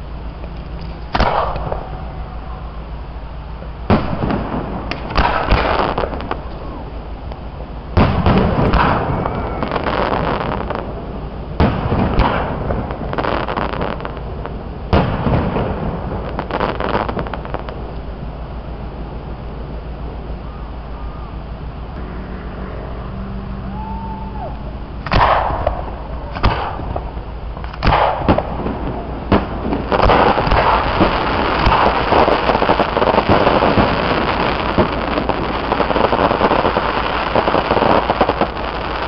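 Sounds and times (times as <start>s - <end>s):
firework shells booming: 0.6s - 2.9s, 3.8s - 18.0s, 24.9s - 39.0s.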